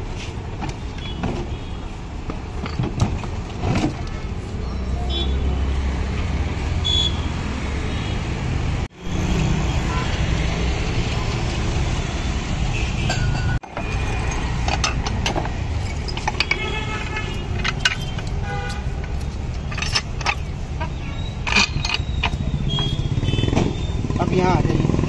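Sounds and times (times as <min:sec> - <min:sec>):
street traffic rumble: 0:00.0 - 0:25.0
glass bottles clinking: 0:13.1 - 0:23.1.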